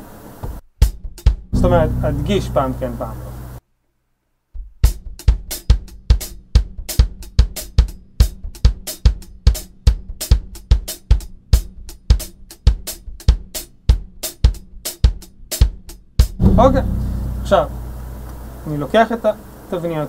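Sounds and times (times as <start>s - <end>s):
bass drum: 1.3s - 3.6s, 16.3s - 19.0s
hi-hat: 1.5s - 3.6s, 4.9s - 19.6s
cymbals: 1.6s - 3.6s, 16.4s - 20.0s
snare drum: 16.4s - 19.0s.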